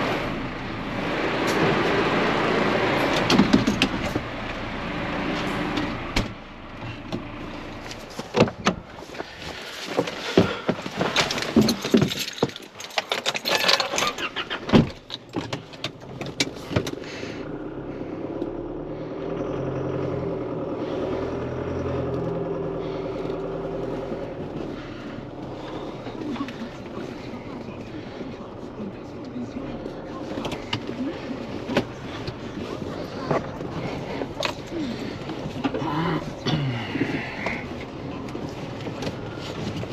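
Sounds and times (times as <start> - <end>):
tractor engine running: 0.0 - 39.9
metallic clanks and rattles: 9.8 - 17.0.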